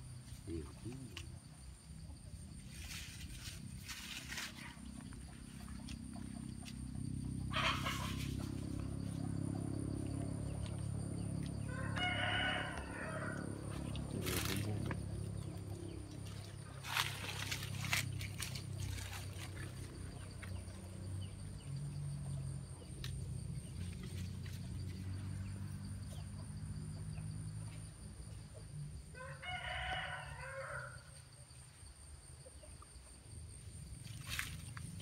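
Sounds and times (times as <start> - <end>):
animal call: 7.5 - 8.6.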